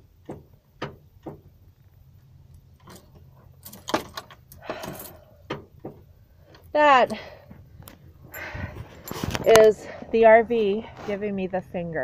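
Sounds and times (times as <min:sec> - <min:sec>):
keys jangling: 0:02.8 - 0:05.3, 0:08.3 - 0:09.8.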